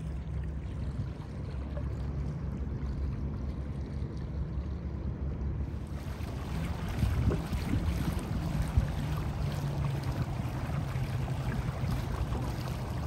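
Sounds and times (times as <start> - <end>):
steady low rumble: 0.0 - 13.0
water swishing at a hull: 0.0 - 13.0
paddle strokes splashing: 5.7 - 13.0.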